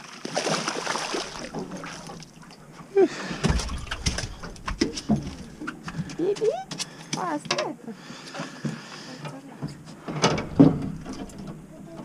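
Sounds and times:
water splashing: 0.0s - 7.3s
rumbling: 3.2s - 6.7s.

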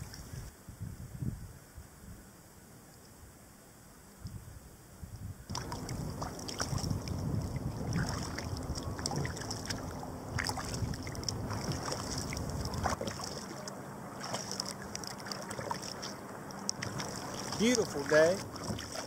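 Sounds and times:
wind rumbling on microphone: 0.0s - 2.6s, 4.2s - 19.0s
paddle blades splashing: 5.5s - 19.0s
water lapping around hull: 5.5s - 19.0s.

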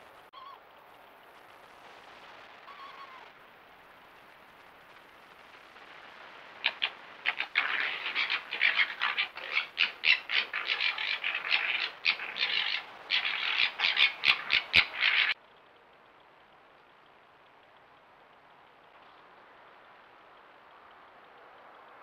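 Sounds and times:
foxes chattering: 6.6s - 15.4s.

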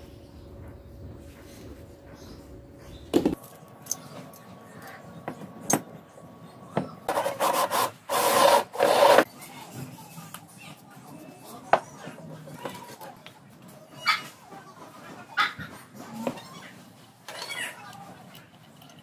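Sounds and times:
concrete scraping on table: 7.1s - 9.3s.

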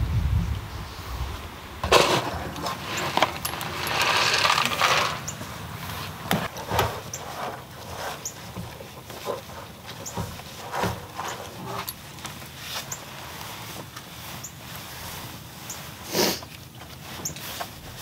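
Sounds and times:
rustle: 0.0s - 18.0s.

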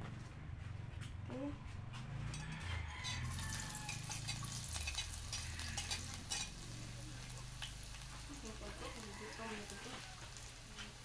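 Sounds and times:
spatula clicking and scraping: 2.2s - 8.7s
garlic sizzling in a frying pan: 3.0s - 11.0s.

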